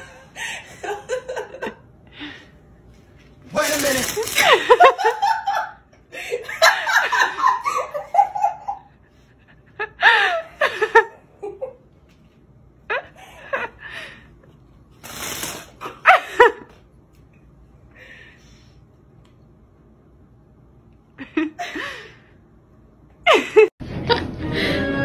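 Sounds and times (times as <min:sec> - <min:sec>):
people laughing: 0:00.0 - 0:01.9, 0:04.1 - 0:11.8.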